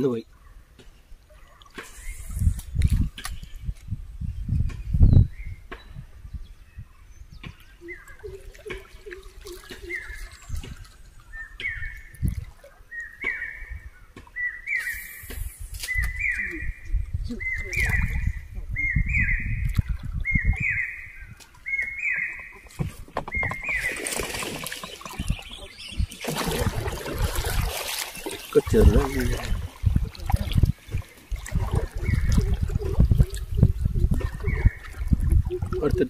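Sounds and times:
bird whistled call: 9.5 - 10.4, 12.9 - 13.8, 14.4 - 19.6, 20.2 - 22.6
boat knocks and rumble: 21.8 - 36.0.

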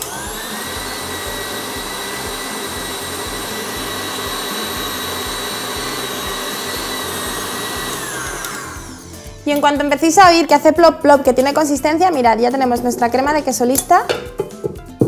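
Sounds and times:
stand mixer motor whine: 0.0 - 9.2.

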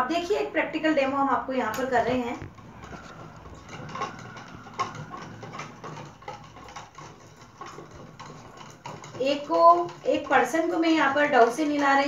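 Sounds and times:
spoons clinking against glasses: 2.7 - 11.8.

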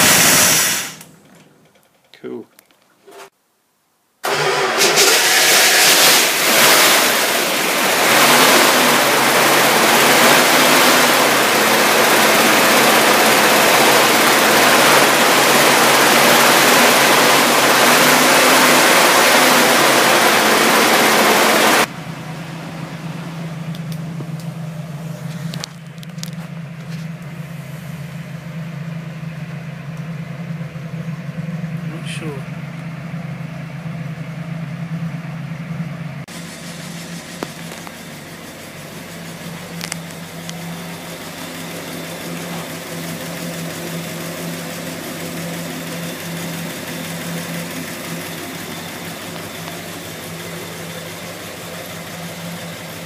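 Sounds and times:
car engine idling with low hum: 4.2 - 53.0
car engine running: 4.2 - 53.0.

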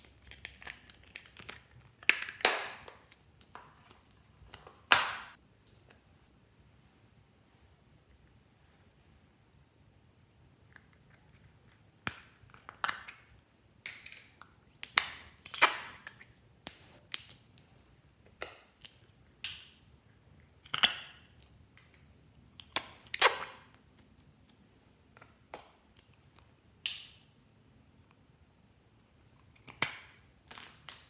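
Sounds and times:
plastic lids clicking and popping: 1.1 - 3.0.

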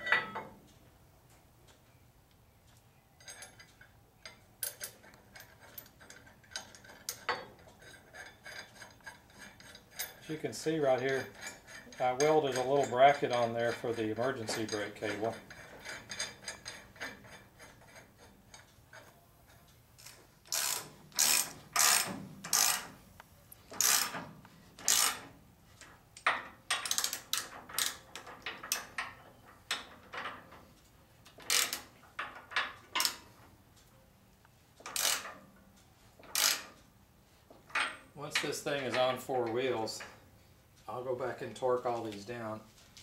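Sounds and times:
metal clinks: 3.2 - 19.0
ratchet wrench clicking: 20.0 - 22.9, 23.6 - 24.2, 24.8 - 25.3, 26.2 - 29.0, 31.4 - 32.3, 34.8 - 35.4, 36.3 - 36.8.

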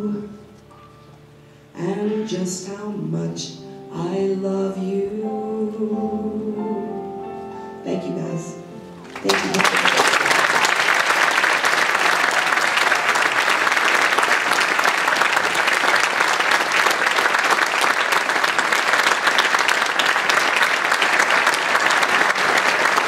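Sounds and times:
crowd applauding: 9.0 - 23.0.

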